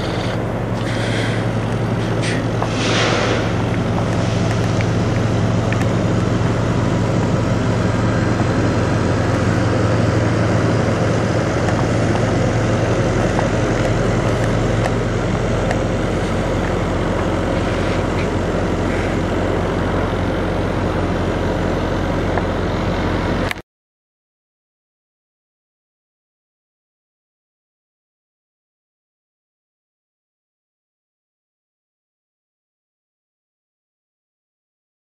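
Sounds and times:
truck diesel engines idling: 0.0s - 23.6s.

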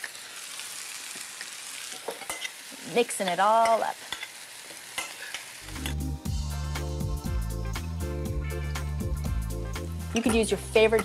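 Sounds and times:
background music with steady beat: 5.7s - 11.0s.

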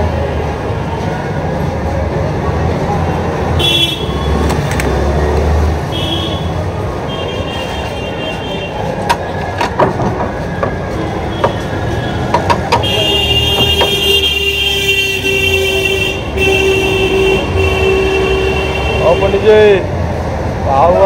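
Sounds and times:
traffic engine and road rumble: 0.0s - 21.0s
long vehicle horn: 3.6s - 4.3s, 12.8s - 19.5s.

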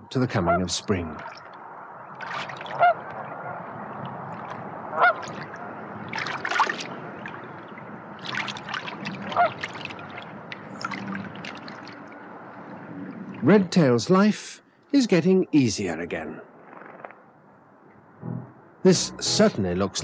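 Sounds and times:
birds splashing in water: 0.9s - 13.5s
geese honking: 2.7s - 3.6s, 4.9s - 5.3s.

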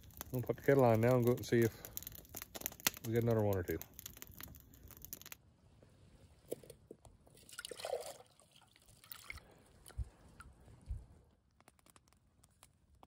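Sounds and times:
water sloshing into a mug: 7.4s - 10.6s.

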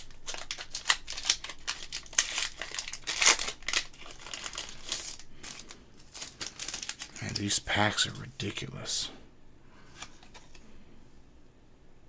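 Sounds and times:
foil wrapper crinkling and tearing: 0.0s - 8.1s.

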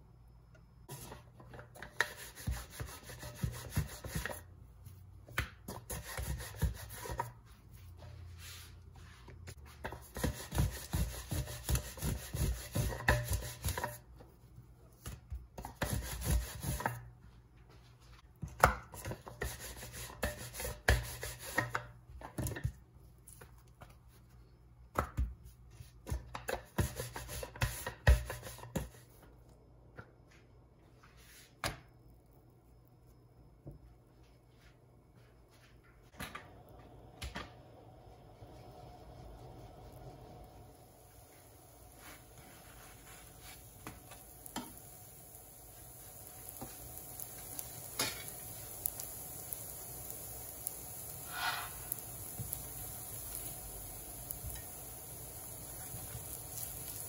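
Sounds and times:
rolling pin knocking and rubbing: 0.9s - 4.5s, 9.7s - 14.1s.

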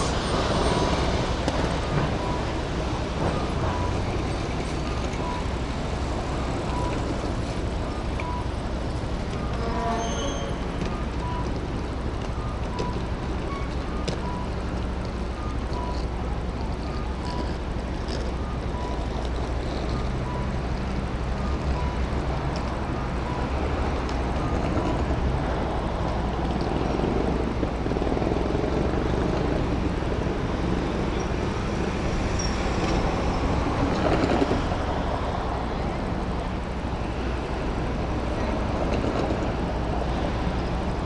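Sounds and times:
road traffic: 0.0s - 41.0s
crossing signal two-tone beeps: 3.4s - 5.6s, 6.6s - 7.1s, 7.8s - 8.6s, 9.3s - 11.6s, 12.2s - 14.6s.

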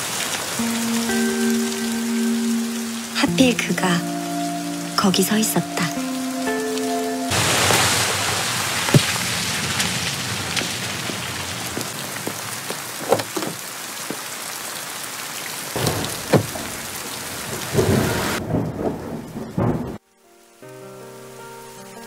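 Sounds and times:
heavy rain pouring: 0.0s - 20.0s
soft music: 0.5s - 7.3s, 20.0s - 22.0s
thunder rumbles: 7.3s - 13.0s, 15.8s - 20.0s.

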